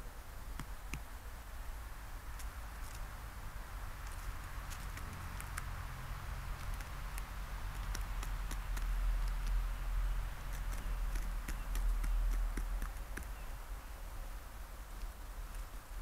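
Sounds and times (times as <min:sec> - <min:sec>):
beak taps and clicks: 0:04.0 - 0:05.7, 0:06.6 - 0:09.6, 0:10.5 - 0:13.4.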